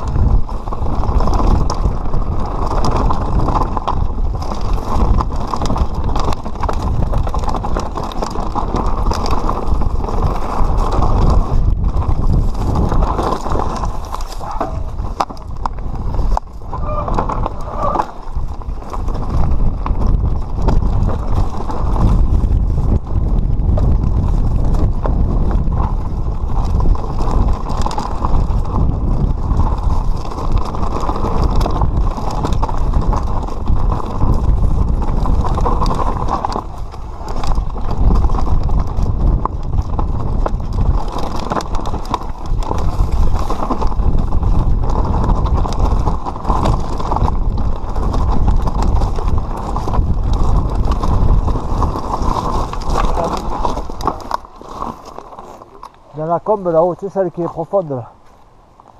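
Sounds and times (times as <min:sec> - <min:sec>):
wind buffeting microphone: 0:00.0 - 0:55.0
bike rattling: 0:00.0 - 0:58.9
tyres clattering over stones: 0:51.6 - 0:58.0.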